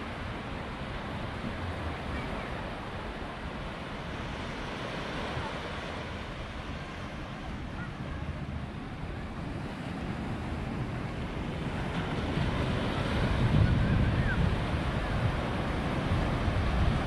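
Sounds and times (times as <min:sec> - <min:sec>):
ocean waves breaking on beach: 0:00.0 - 0:17.0.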